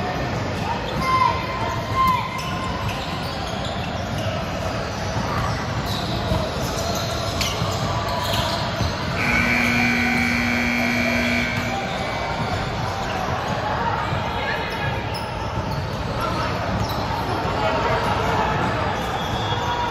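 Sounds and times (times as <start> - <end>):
sports hall court noise: 0.0 - 19.9
steady horn tone: 9.2 - 12.1.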